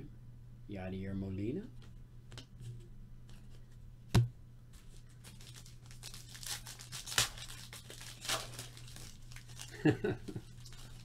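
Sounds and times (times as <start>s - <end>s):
wrapper crinkling and tearing: 4.8s - 11.0s.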